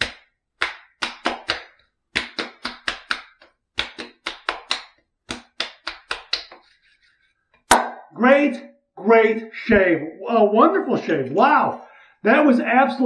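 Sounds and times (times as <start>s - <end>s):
wet hands patting skin: 0.0s - 7.7s.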